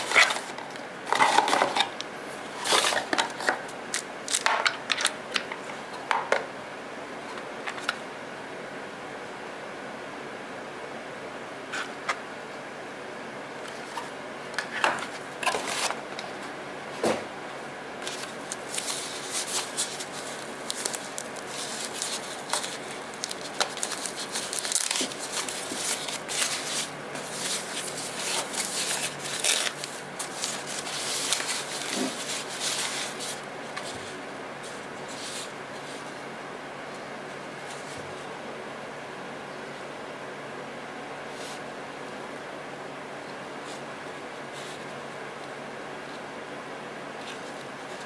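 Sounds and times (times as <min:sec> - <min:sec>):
steady background hiss: 0:00.0 - 0:48.0
packing wrap crinkling: 0:18.0 - 0:34.0.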